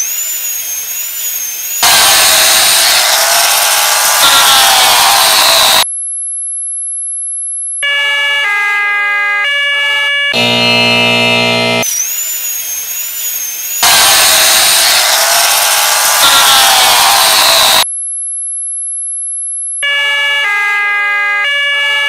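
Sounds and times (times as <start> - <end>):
harsh buzzer: 0.0 - 5.8, 7.8 - 17.9, 19.8 - 22.0
stepping electronic tones: 0.0 - 5.8, 10.4 - 17.8
wavering high whistle: 0.0 - 5.8, 10.4 - 17.8
high-pitched electronic tone: 0.0 - 5.9, 10.4 - 17.9
rushing noise with sliding pitch: 13.8 - 17.8.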